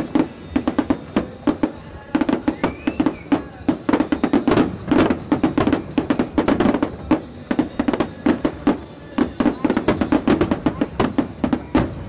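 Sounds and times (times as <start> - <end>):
fireworks bangs and crackles: 0.0 - 12.0
music playing: 0.0 - 12.0.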